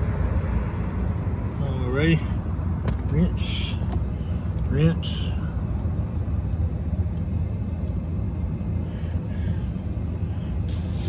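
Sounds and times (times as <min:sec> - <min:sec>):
highway traffic rumble: 0:00.0 - 0:11.0.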